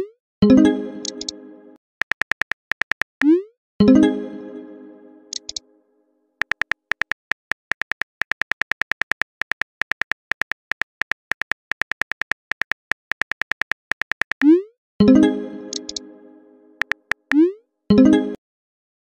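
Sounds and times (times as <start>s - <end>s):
phone keyboard key clicks: 2.0s - 3.3s, 5.3s - 5.6s, 6.4s - 14.4s, 15.7s - 16.0s, 16.8s - 17.4s.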